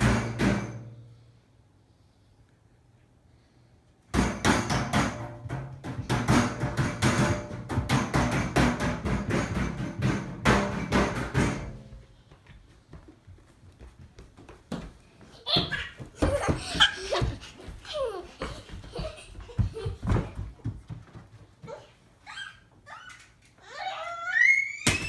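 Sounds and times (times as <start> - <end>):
rapid knocks and bangs: 4.1 - 12.0.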